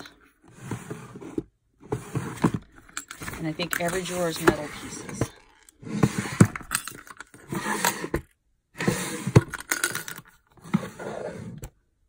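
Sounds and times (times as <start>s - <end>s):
wooden drawers opening and shutting: 0.0s - 11.8s
metal pieces rattling and clinking: 9.5s - 10.3s.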